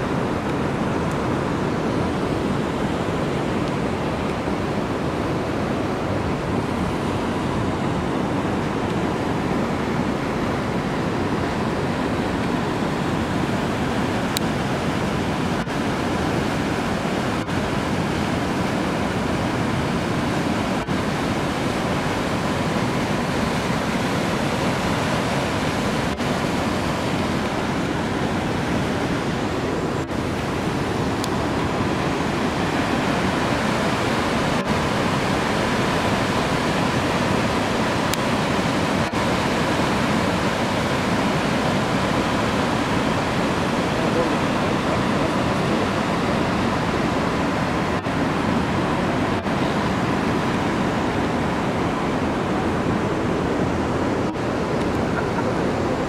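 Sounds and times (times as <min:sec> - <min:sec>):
waterfall and rapids rushing: 0:00.0 - 0:56.0.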